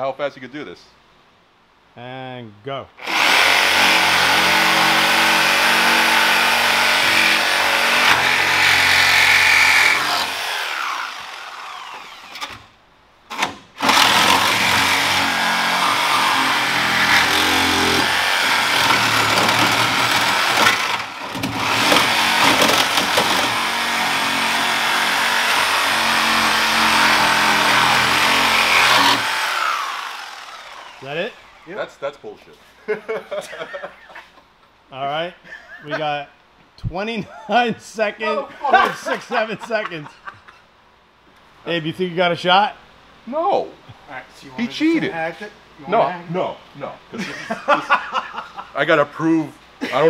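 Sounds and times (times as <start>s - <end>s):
reciprocating saw cutting steel: 3.0s - 12.6s, 13.4s - 31.7s.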